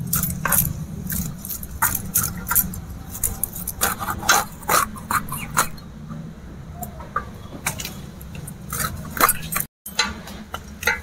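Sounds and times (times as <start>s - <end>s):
bangles clinking: 0.0s - 3.8s
knife scraping fish: 0.2s - 5.8s, 7.8s - 9.7s.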